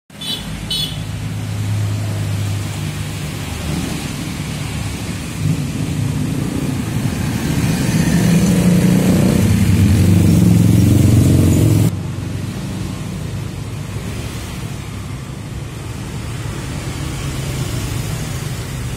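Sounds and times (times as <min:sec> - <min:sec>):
cars and motorcycles passing: 0:00.1 - 0:18.9.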